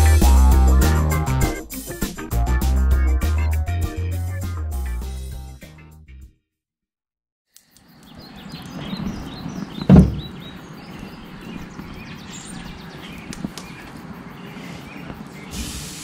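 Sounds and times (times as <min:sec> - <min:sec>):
birds chirping: 0:07.6 - 0:16.0
steady background noise: 0:07.8 - 0:16.0
loud short thump: 0:09.8 - 0:10.4.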